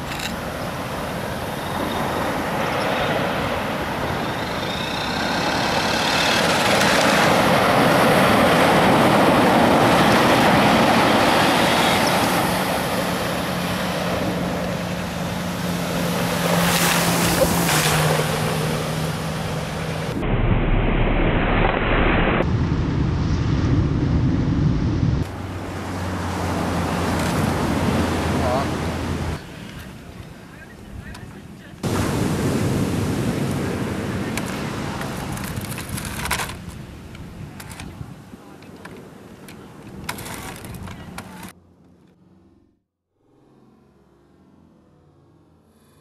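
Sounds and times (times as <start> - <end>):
ocean surf breaking on beach: 0.0 - 20.2, 25.2 - 40.4
wind on microphone: 19.4 - 25.8, 26.5 - 38.6.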